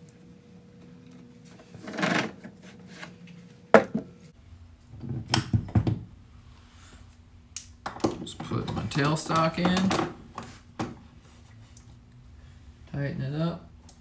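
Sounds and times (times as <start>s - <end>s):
faint steady hum: 0.0s - 14.0s
tools knocking and clunking: 7.8s - 11.0s.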